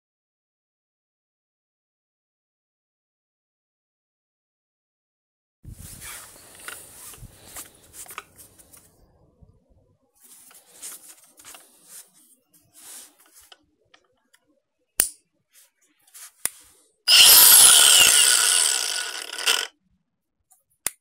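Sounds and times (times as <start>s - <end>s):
handling rustles: 5.7s - 9.0s, 10.2s - 13.6s, 15.6s - 16.8s
angle grinder motor whining: 17.1s - 19.7s.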